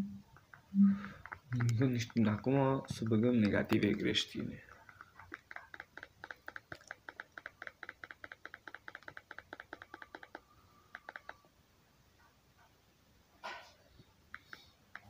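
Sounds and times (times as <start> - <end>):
keyboard typing: 0.4 - 11.5, 14.3 - 15.0.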